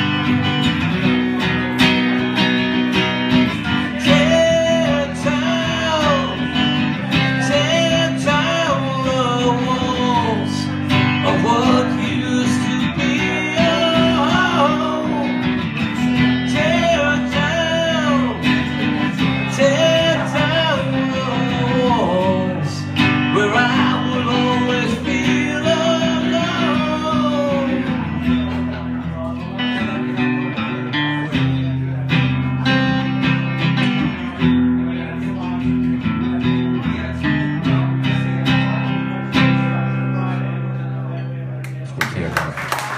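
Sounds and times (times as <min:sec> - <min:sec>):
acoustic guitar strumming: 0:00.0 - 0:41.8
man singing: 0:01.4 - 0:31.0.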